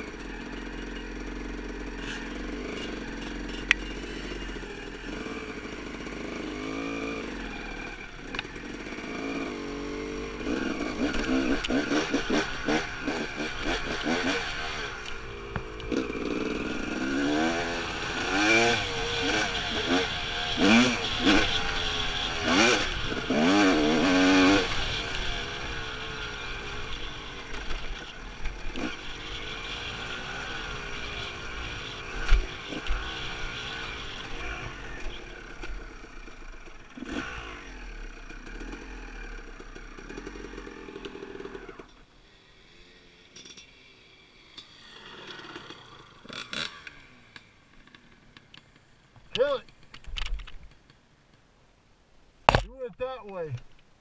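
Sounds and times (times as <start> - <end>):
dirt bike engine revving: 0.0 - 41.9, 44.6 - 47.6
bike knocking on rough trail: 52.5 - 52.8.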